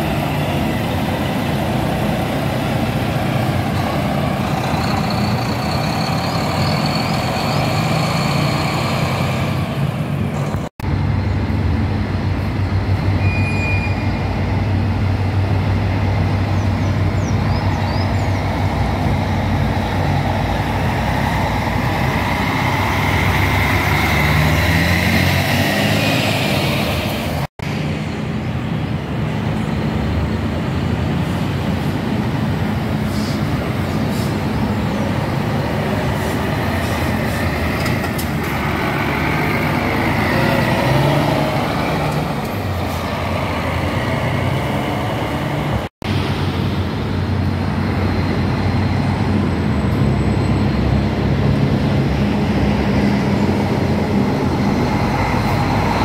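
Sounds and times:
coach diesel engines: 0:00.0 - 0:56.0.

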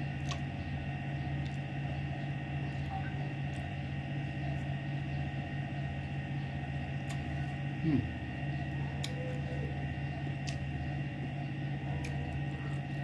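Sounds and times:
low electrical hum: 0:00.0 - 0:13.0
chewing clicks: 0:00.2 - 0:00.5, 0:01.3 - 0:01.7, 0:07.0 - 0:07.4, 0:09.0 - 0:09.4, 0:10.3 - 0:10.8, 0:12.0 - 0:12.9.

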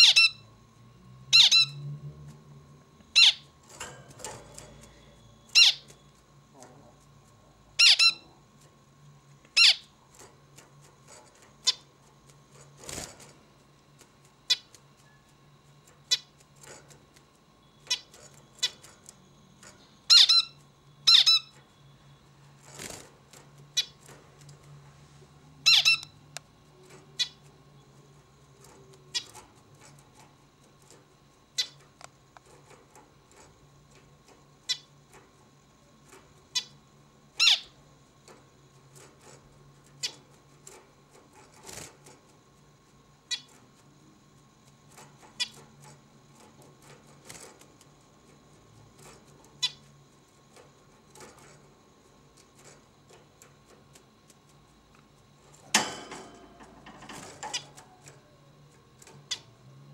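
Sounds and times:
zebra finch calls: 0:00.0 - 0:00.4, 0:01.3 - 0:01.8, 0:03.1 - 0:03.5, 0:04.8 - 0:06.0, 0:07.8 - 0:08.4, 0:09.6 - 0:09.9, 0:17.6 - 0:18.9, 0:19.9 - 0:21.6, 0:25.6 - 0:26.2, 0:27.2 - 0:27.4, 0:31.6 - 0:31.8, 0:34.6 - 0:34.9, 0:36.5 - 0:36.7, 0:37.4 - 0:37.8, 0:43.3 - 0:43.5, 0:45.4 - 0:45.6, 0:49.6 - 0:49.9.

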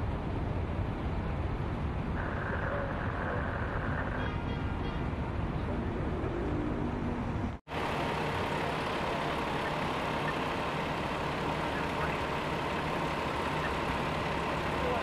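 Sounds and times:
outdoor street noise: 0:00.0 - 0:15.0
vehicle engine idling: 0:07.7 - 0:15.0.

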